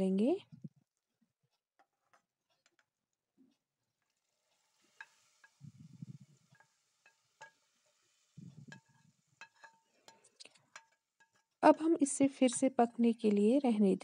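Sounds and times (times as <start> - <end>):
oil sizzling as poured into liquid: 3.8 - 11.6
utensil clinking against pan: 8.6 - 11.6.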